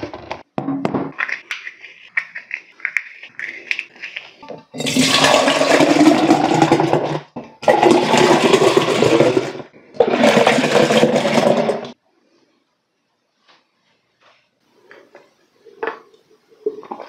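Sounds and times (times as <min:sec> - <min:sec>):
milk glugging into a glass: 0:15.6 - 0:17.0.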